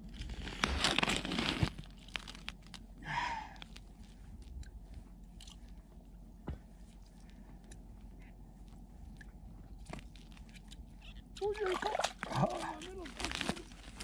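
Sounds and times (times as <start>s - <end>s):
fishing line crunching and rustling: 0.0s - 3.0s, 8.7s - 14.0s.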